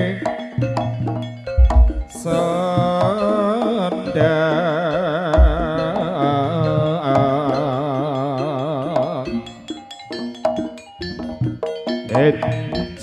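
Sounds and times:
drum strokes: 0:00.0 - 0:07.8, 0:10.2 - 0:13.0
gamelan lead melody with vibrato: 0:00.0 - 0:13.0
deep drum stroke: 0:01.6 - 0:02.2.

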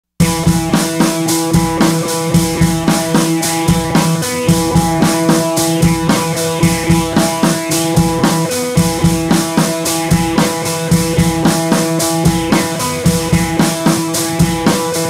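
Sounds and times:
drum kit steady beat: 0:00.2 - 0:15.0
held instrumental notes: 0:00.2 - 0:15.0.

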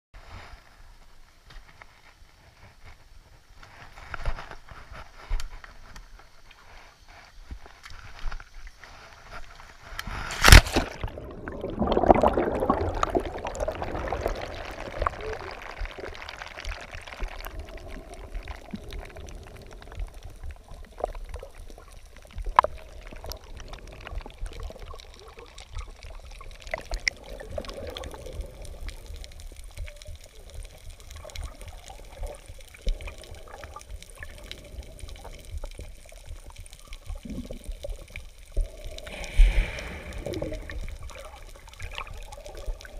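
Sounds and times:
rushing gurgling bubbles: 0:10.1 - 0:42.9
splash into water: 0:10.3 - 0:13.7
muffled underwater noise: 0:38.7 - 0:41.8.

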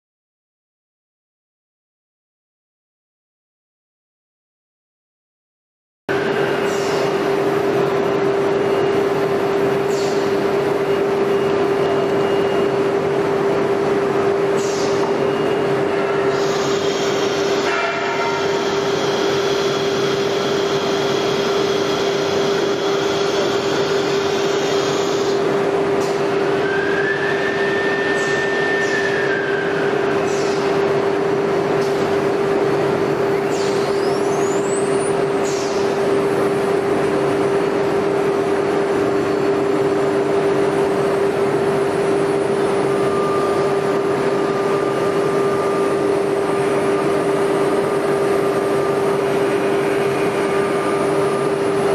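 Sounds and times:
router spindle whine: 0:42.0 - 0:51.9.

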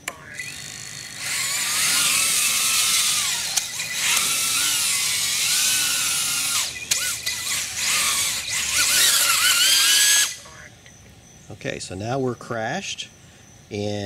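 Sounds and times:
quadcopter motors whining: 0:00.0 - 0:11.1.

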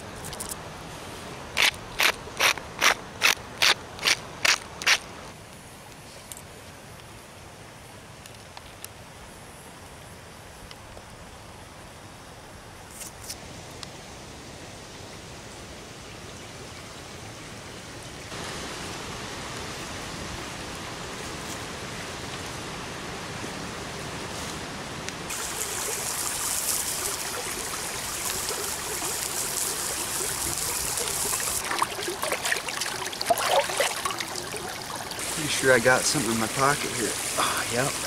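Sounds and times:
creek running over rocks: 0:18.3 - 0:38.0
cutting board splashing in water: 0:31.6 - 0:34.8.

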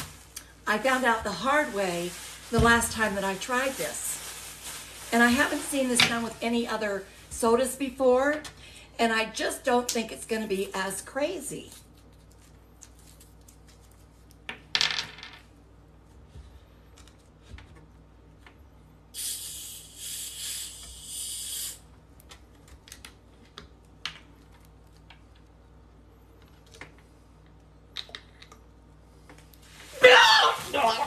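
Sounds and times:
wrapper crinkle: 0:00.0 - 0:06.8, 0:11.6 - 0:14.4
gas hissing from bottle: 0:19.2 - 0:21.8.

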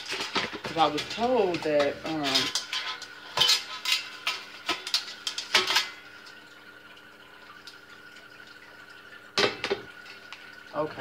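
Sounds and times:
oven parts knocking and clattering: 0:00.0 - 0:04.1
faint steady hum: 0:00.0 - 0:11.0.

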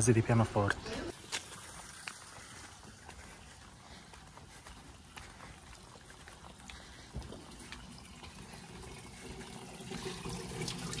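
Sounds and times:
water running from a spout: 0:01.1 - 0:03.6, 0:04.9 - 0:11.0.

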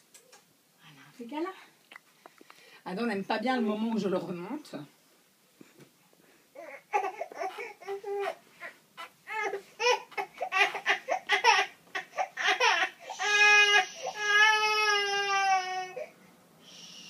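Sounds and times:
baby crying: 0:06.6 - 0:16.1.

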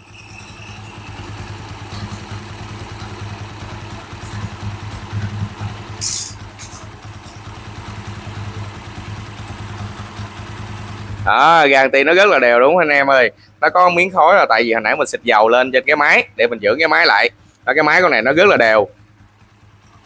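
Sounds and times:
motorcycle engine idling: 0:00.0 - 0:20.0
sharp hiss: 0:06.0 - 0:06.8.

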